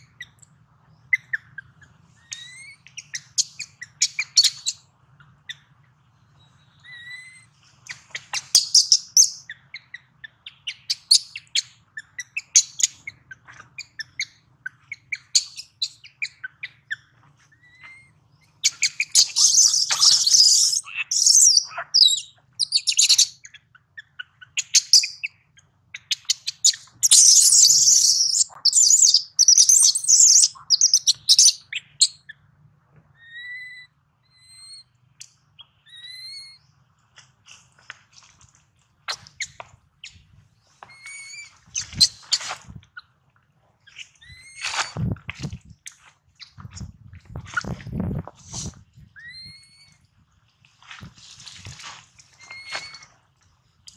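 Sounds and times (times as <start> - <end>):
baby monkey crying: 18.8 - 23.2.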